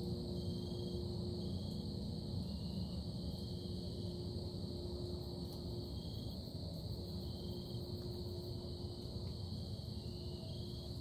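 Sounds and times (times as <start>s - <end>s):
low droning hum: 0.0s - 11.0s.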